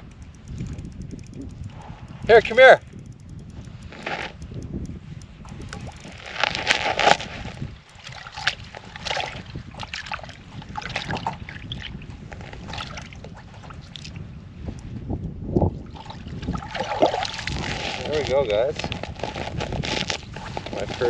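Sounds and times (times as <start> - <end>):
wind on microphone: 0.0 - 21.0
water splashing and sloshing: 5.8 - 14.2, 15.8 - 21.0.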